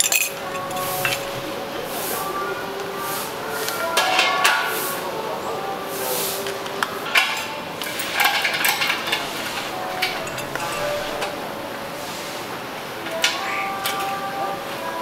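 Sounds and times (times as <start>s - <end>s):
metal utensils and cups clinking: 0.0s - 2.6s, 3.2s - 5.2s, 7.0s - 11.6s.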